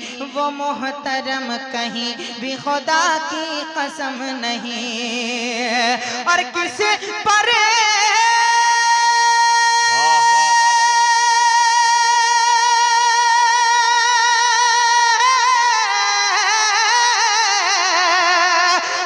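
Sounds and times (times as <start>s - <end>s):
man singing long high note: 9.8s - 11.4s
fainter lower voice: 9.9s - 10.7s.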